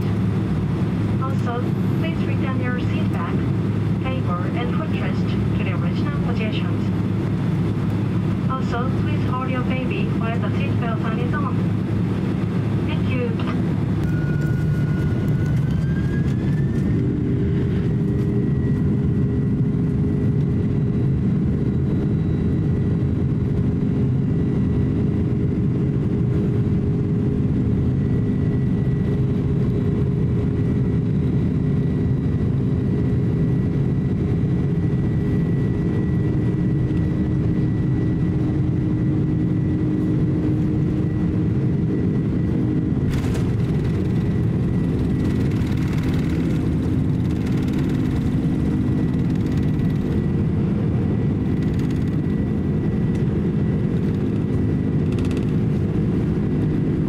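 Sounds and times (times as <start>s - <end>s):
jet engines whining: 0.0s - 57.0s
heavy rumble: 24.9s - 57.0s.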